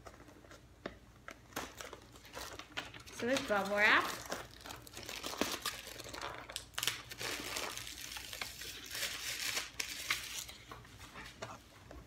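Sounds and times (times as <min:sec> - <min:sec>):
bubble wrap and paper crinkling: 0:00.0 - 0:11.7.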